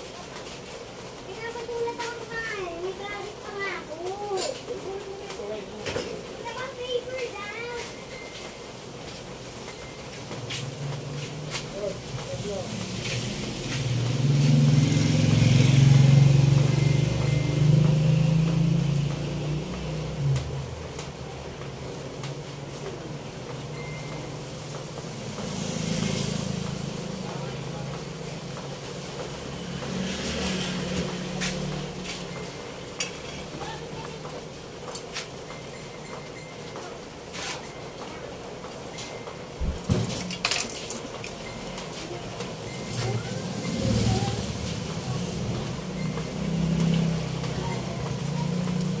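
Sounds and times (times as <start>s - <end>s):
vehicle engine passing by: 11.0s - 21.3s, 24.3s - 34.0s, 42.6s - 49.0s.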